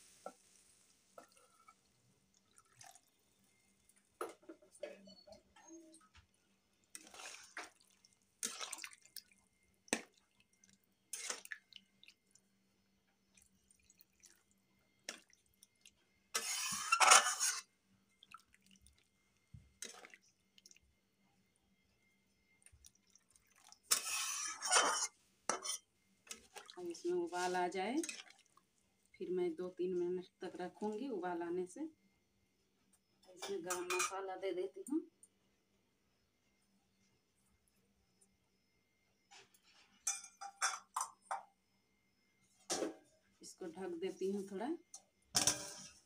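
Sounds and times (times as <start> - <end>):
liquid sloshing: 1.2 - 3.2, 6.9 - 12.4, 13.3 - 17.6, 18.2 - 20.8, 22.7 - 25.0, 26.3 - 28.7
metal spatula scraping a pan: 11.1 - 11.5, 16.3 - 17.7, 23.9 - 26.5.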